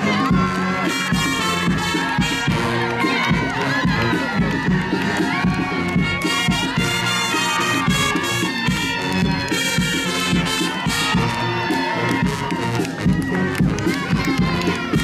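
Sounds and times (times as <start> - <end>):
brass band music: 0.0 - 15.0
crowd cheering and shouting: 0.0 - 15.0.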